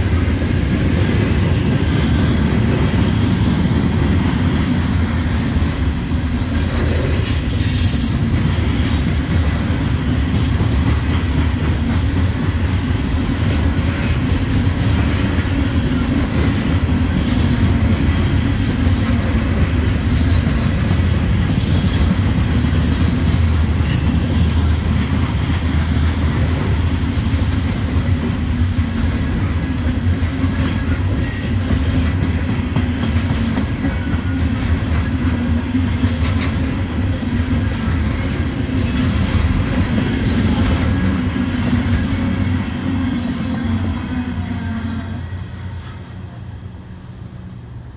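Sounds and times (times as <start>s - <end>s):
train wheels rumbling on rails: 0.0s - 47.9s
high-pitched running gear squeals: 7.6s - 8.2s.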